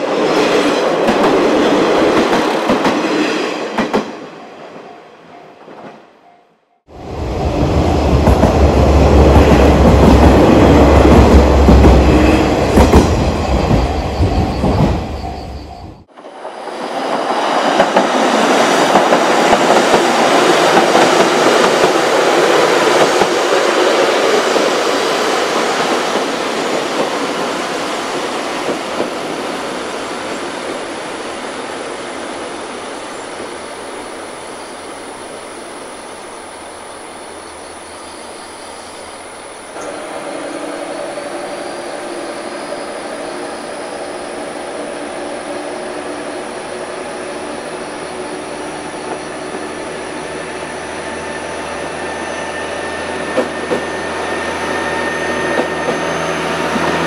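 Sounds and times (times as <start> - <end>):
diesel railcar passing close: 0.0 - 57.0
distant diesel railcar running past: 32.6 - 57.0.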